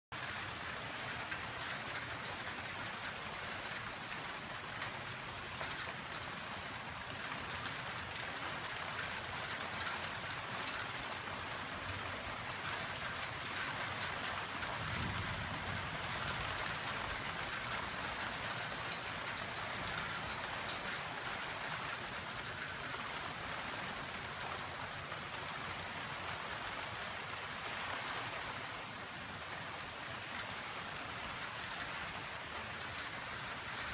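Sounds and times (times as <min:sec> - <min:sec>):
rain on paving and plants: 0:00.1 - 0:33.9
low thunder rumble: 0:14.8 - 0:17.2.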